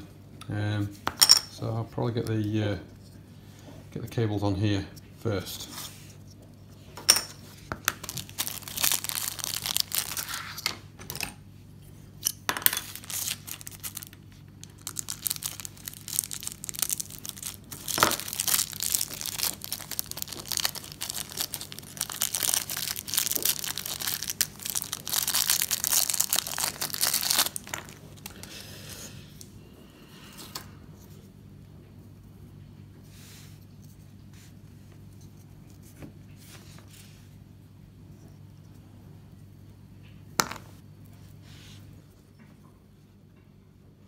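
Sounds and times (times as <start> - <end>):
faint steady hum: 0.0 - 44.0
plastic bag crinkling: 7.7 - 10.6, 12.8 - 28.5.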